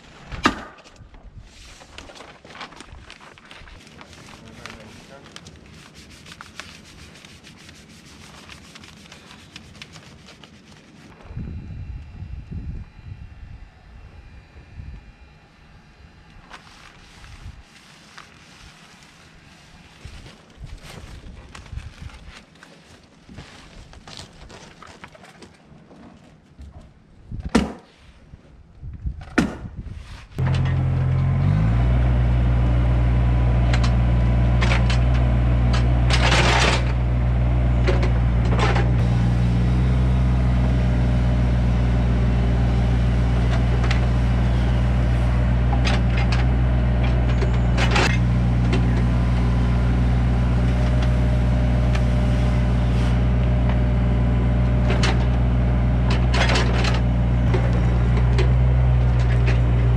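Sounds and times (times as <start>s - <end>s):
excavator diesel engine: 30.4s - 59.9s
bucket scraping dirt: 41.6s - 59.9s.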